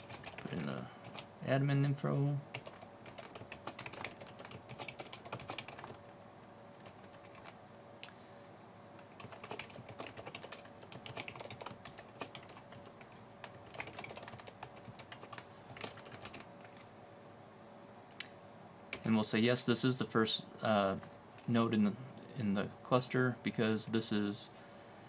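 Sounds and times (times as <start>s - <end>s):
typing on computer keyboard: 0.0s - 1.3s, 2.5s - 6.0s, 6.8s - 7.6s, 9.0s - 16.8s.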